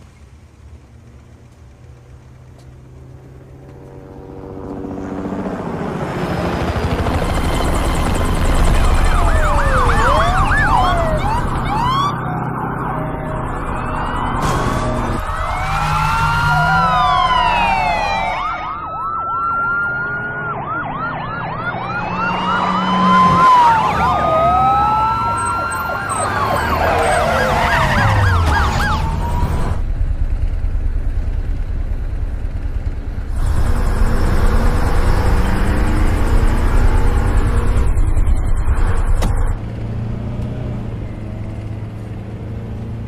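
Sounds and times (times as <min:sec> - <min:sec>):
police sirens wailing and yelping: 0:05.8 - 0:29.8, 0:33.4 - 0:39.6
low vehicle rumble: 0:06.8 - 0:43.0.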